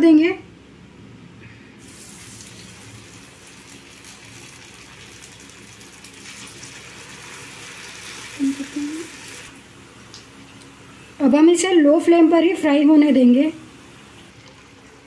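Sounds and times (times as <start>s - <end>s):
oil sizzling in a pan: 1.8s - 9.6s.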